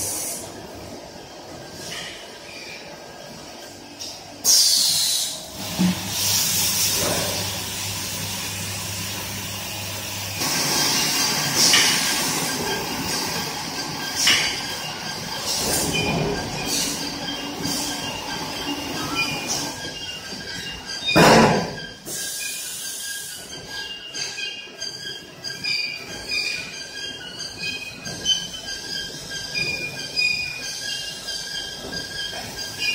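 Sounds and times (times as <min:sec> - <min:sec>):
filling machinery humming: 0:04.4 - 0:19.9.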